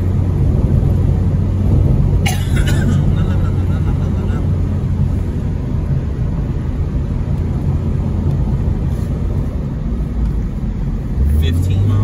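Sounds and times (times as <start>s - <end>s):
car engine running: 0.0s - 12.0s
road and tyre rumble: 0.0s - 12.0s.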